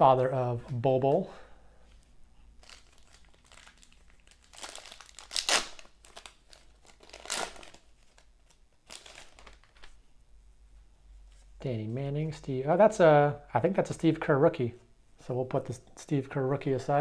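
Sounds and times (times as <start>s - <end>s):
wrapper crinkling and tearing: 2.5s - 10.0s.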